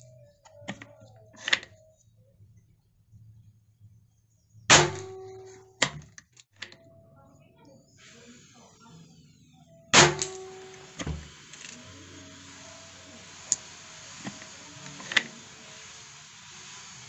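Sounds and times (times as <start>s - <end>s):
air rifle shot pop: 10.0s - 11.2s.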